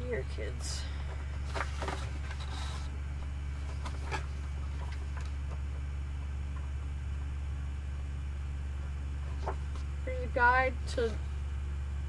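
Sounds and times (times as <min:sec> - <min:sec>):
low electrical hum: 0:00.0 - 0:12.0
paper rustling: 0:01.2 - 0:05.7.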